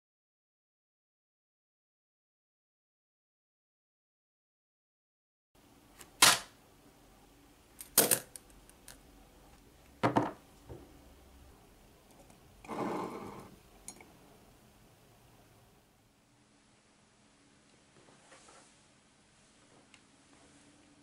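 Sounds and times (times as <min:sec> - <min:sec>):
objects knocking on wooden desk: 0:10.0 - 0:10.9.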